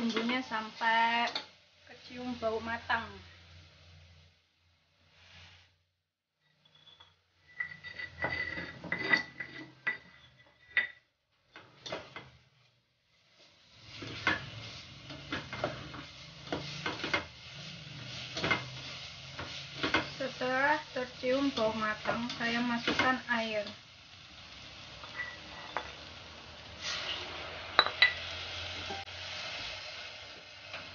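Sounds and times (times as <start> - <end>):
paste sizzling in oil: 0.0 - 5.8, 11.7 - 30.9
spatula scraping a saucepan: 6.5 - 11.0, 25.0 - 25.9.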